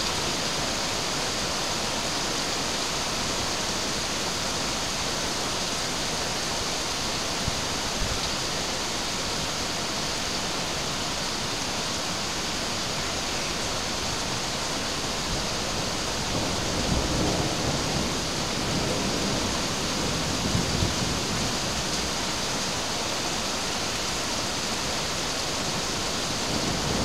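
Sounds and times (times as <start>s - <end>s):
heavy rain falling: 0.0s - 27.0s
low rumbles of thunder: 15.4s - 22.2s, 26.2s - 27.0s.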